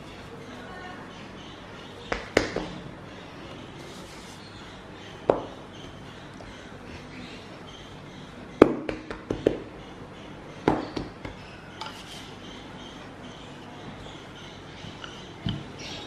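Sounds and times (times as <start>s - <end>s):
hands patting dough: 8.6s - 9.7s
rolling pin scraping dough: 11.8s - 12.4s.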